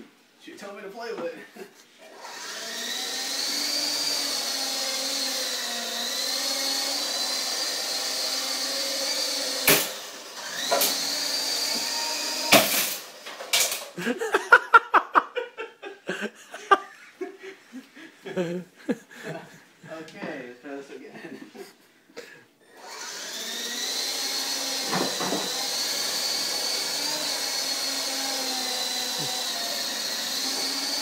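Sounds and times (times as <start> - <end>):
model helicopter rotor whining: 22.8 - 24.9, 25.5 - 31.0.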